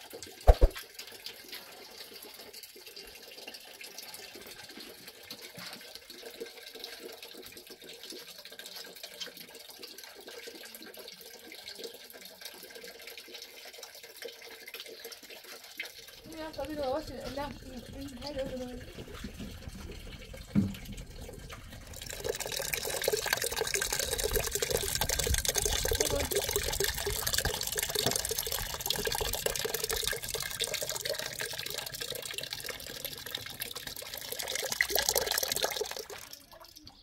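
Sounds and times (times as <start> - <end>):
water running into metal pot: 0.0 - 37.0
thump: 20.6 - 20.9.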